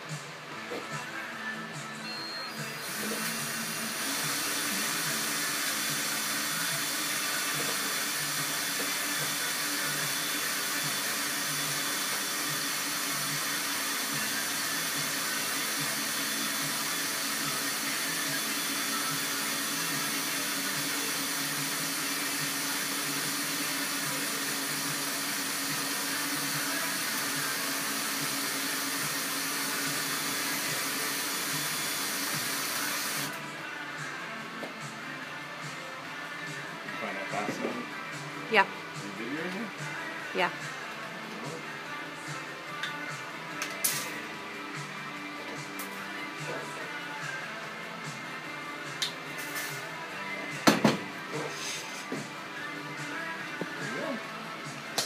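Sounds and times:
cordless drill running: 0:02.5 - 0:33.4.

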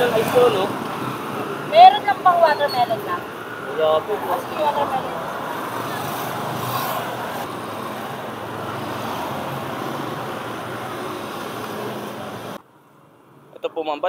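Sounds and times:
motorcycles and cars passing: 0:00.0 - 0:13.6.

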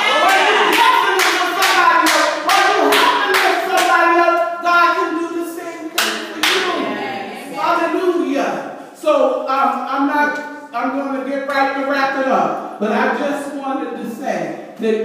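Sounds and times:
hand clapping in rhythm: 0:00.0 - 0:04.5, 0:05.9 - 0:06.8.

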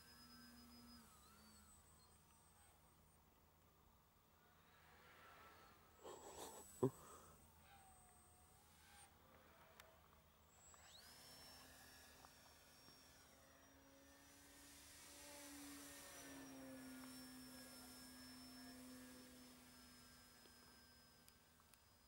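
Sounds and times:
electric motor high whine: 0:00.0 - 0:22.0
propeller low hum: 0:10.0 - 0:21.6.

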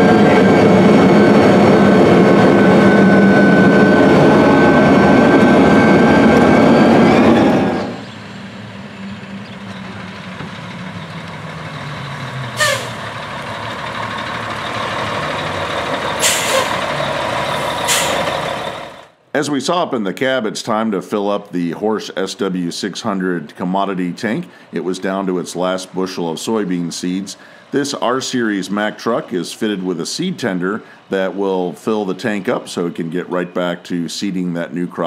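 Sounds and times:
diesel truck engine running: 0:00.0 - 0:19.2
tractor cab drone and whine: 0:00.0 - 0:19.2
air brake hiss: 0:12.6 - 0:13.0, 0:16.2 - 0:16.8, 0:17.8 - 0:18.3.

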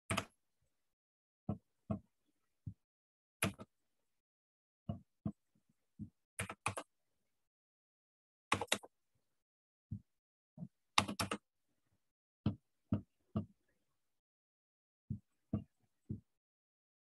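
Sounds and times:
keyboard keys tapping: 0:08.5 - 0:08.9, 0:11.0 - 0:11.4.

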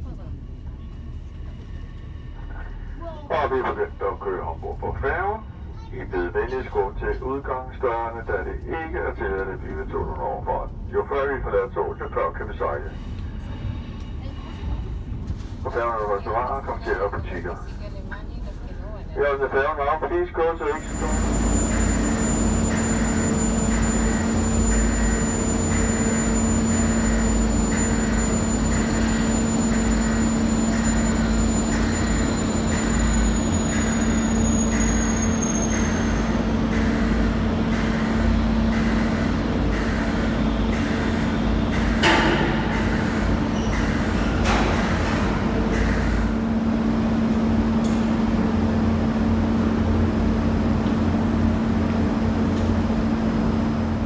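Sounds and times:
ship deck drone and hum: 0:00.0 - 0:54.0
repeated mechanical pulsing: 0:20.1 - 0:50.6
thin high whine: 0:20.6 - 0:36.1.

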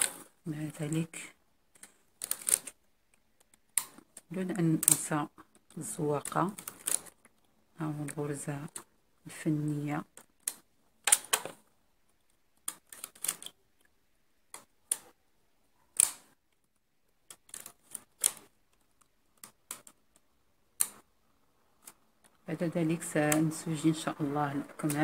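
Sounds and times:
knitting machine needles clicking: 0:01.7 - 0:08.9, 0:12.2 - 0:13.9, 0:15.8 - 0:21.1, 0:21.8 - 0:25.0.

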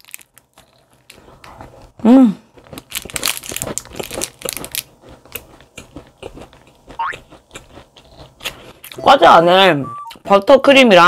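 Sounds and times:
foil wrapper crinkling: 0:00.0 - 0:01.2, 0:02.6 - 0:05.5.

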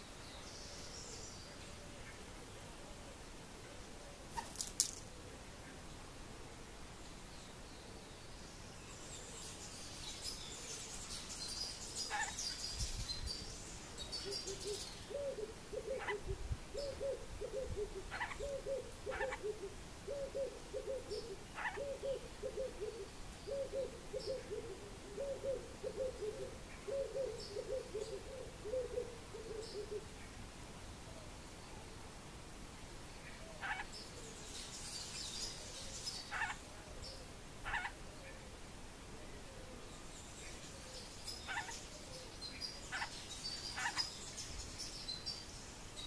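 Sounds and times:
small birds twittering: 0:07.3 - 0:30.2, 0:33.1 - 0:38.4, 0:39.8 - 0:46.0
bird cooing hooting call: 0:14.2 - 0:30.1.

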